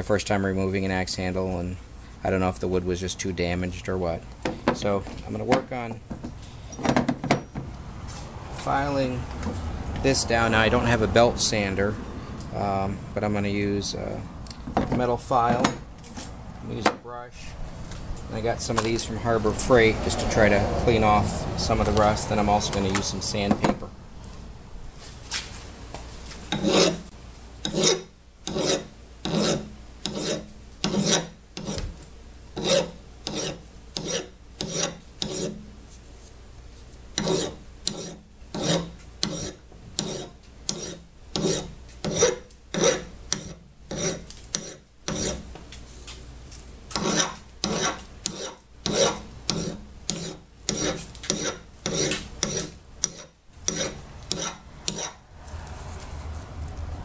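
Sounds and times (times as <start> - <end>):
metal file rasping on steel: 26.5 - 31.8, 32.6 - 35.6, 37.2 - 45.4, 46.9 - 55.2.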